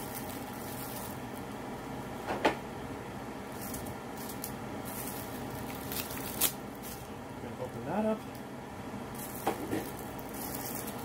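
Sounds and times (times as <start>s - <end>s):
plastic packaging crinkling: 0.0s - 1.6s, 3.6s - 7.1s, 9.1s - 11.0s
steady low hum: 0.0s - 11.0s.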